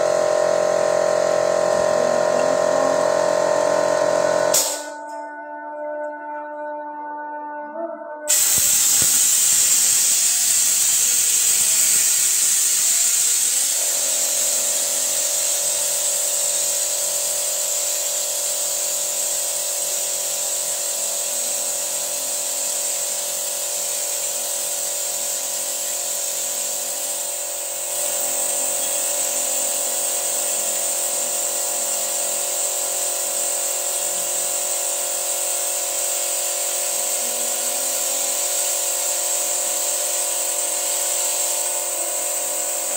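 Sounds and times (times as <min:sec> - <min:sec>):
steady hiss: 0:08.3 - 0:34.2.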